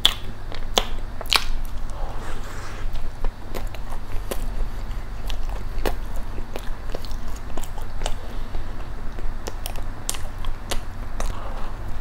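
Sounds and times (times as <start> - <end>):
chewing with sharp clicks: 3.5 - 11.7.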